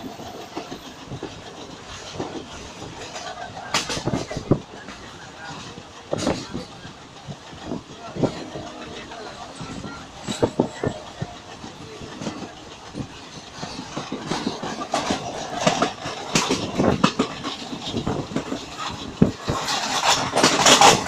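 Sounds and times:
train rumbling on rails: 0:00.0 - 0:21.0
knocks and rattles: 0:09.4 - 0:21.0.

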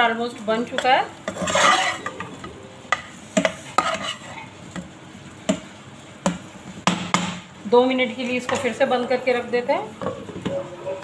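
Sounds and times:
soft sizzle: 0:00.0 - 0:11.0
spatula scraping frying pan: 0:00.7 - 0:04.6.

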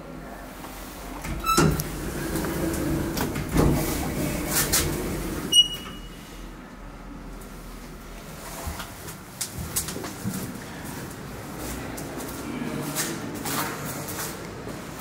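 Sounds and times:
lift car and doors rumbling: 0:01.1 - 0:06.4
short high electronic beep: 0:05.6 - 0:06.2.

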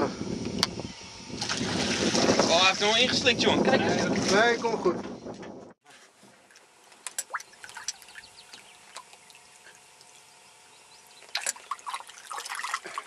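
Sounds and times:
water splashes: 0:01.4 - 0:03.0, 0:07.0 - 0:10.2, 0:11.2 - 0:13.0
water lapping and dripping: 0:06.4 - 0:10.3, 0:11.0 - 0:13.0.

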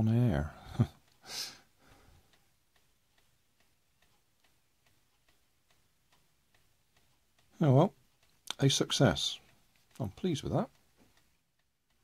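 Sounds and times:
faint even ticking: 0:00.2 - 0:12.0
short breath: 0:01.2 - 0:02.3.

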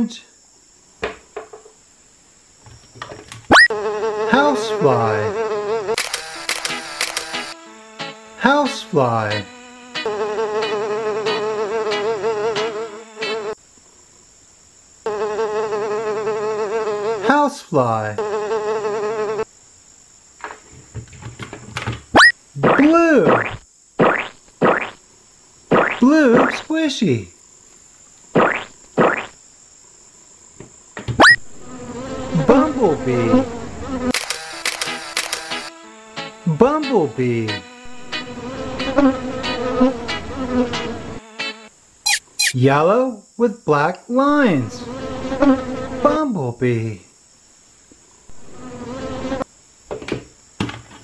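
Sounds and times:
fly buzzing: 0:03.5 - 0:13.7, 0:15.0 - 0:17.4, 0:18.1 - 0:19.6, 0:22.1 - 0:26.8, 0:27.5 - 0:36.6, 0:37.2 - 0:42.6, 0:44.3 - 0:46.2, 0:48.3 - 0:49.5
person speaking: 0:04.3 - 0:05.3, 0:08.4 - 0:09.5, 0:26.0 - 0:27.4, 0:36.5 - 0:37.6, 0:42.1 - 0:43.0, 0:43.7 - 0:44.8.

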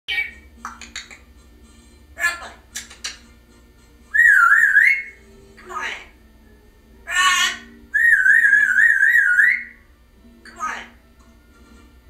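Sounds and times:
parrot voice-like calls: 0:02.2 - 0:03.1, 0:07.0 - 0:09.8
parrot warbling whistles: 0:04.1 - 0:05.2, 0:07.1 - 0:09.8.

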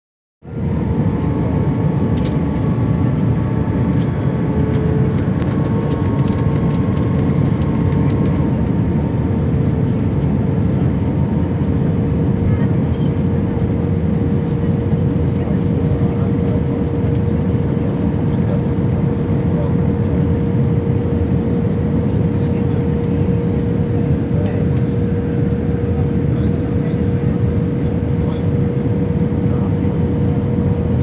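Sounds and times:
jet engines roaring: 0:00.5 - 0:31.0.

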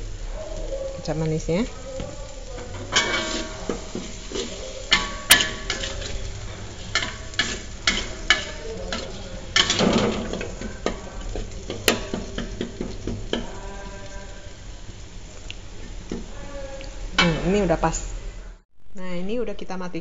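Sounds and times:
sauce sizzling: 0:00.0 - 0:18.7
spatula scraping metal wok: 0:02.5 - 0:14.7.

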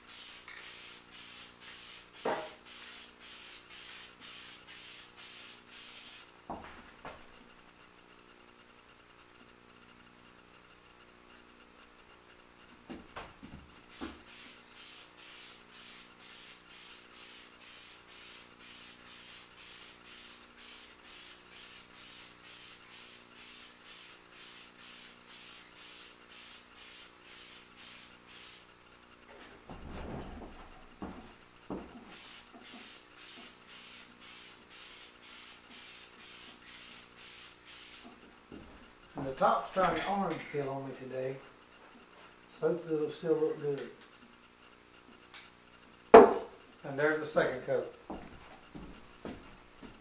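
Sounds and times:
aerosol spray can hissing: 0:00.0 - 0:06.3, 0:13.9 - 0:28.7, 0:32.1 - 0:38.2.

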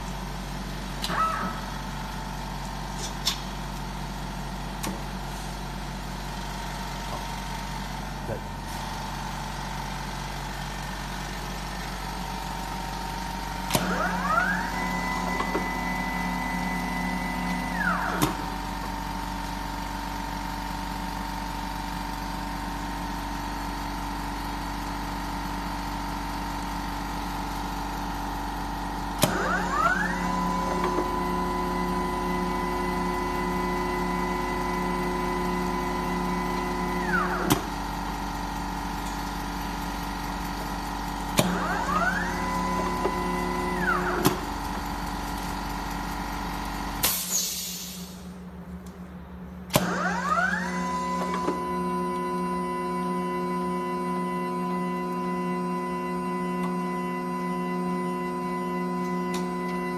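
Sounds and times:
machine hum: 0:00.0 - 0:47.1, 0:48.1 - 0:59.9
taping machine rotor whine: 0:41.4 - 0:45.1.

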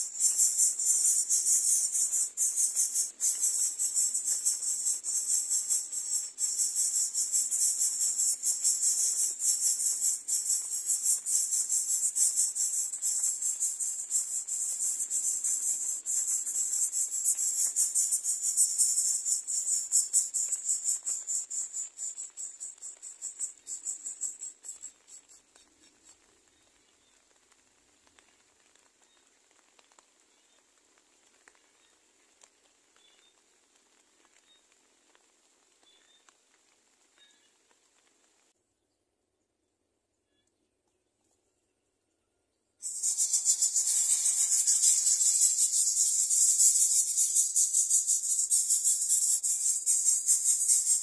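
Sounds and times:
nestlings buzzing chatter: 0:00.0 - 0:25.0, 0:42.8 - 0:51.0.

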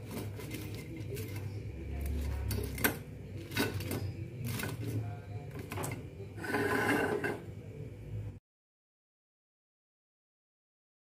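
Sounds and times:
low steady hum: 0:00.0 - 0:08.4.

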